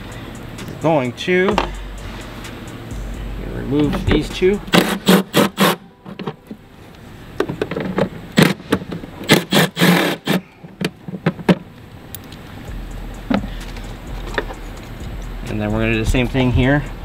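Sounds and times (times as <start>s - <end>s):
cordless impact driver bursts: 9.3s - 10.4s.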